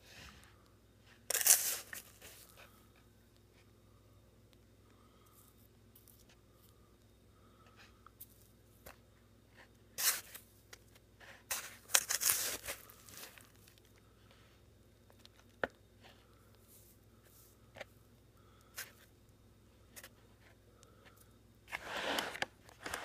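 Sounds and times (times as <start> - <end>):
rustling and scraping: 0.0 - 3.7, 7.7 - 18.0, 19.9 - 23.0.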